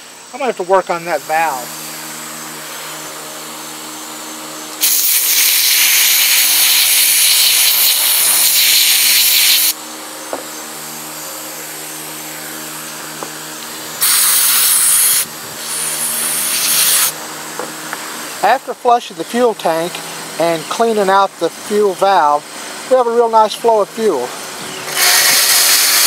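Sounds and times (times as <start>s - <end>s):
aerosol spray can hissing: 4.8s - 9.8s, 14.0s - 17.2s, 25.0s - 26.0s.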